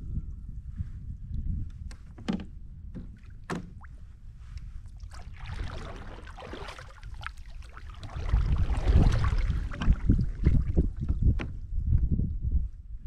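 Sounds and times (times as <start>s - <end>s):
wind buffeting microphone: 0.0s - 13.0s
water splashing and trickling: 3.1s - 11.4s.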